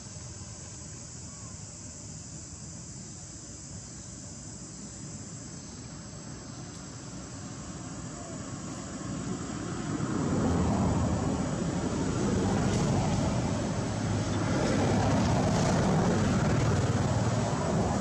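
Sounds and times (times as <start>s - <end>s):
engine rumble: 6.2s - 18.0s.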